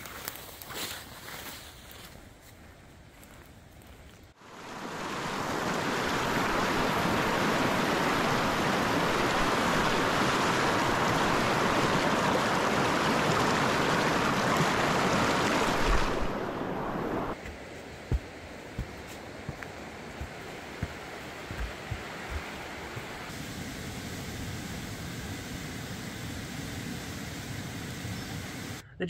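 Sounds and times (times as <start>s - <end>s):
creek rushing over rocks: 4.4s - 23.3s.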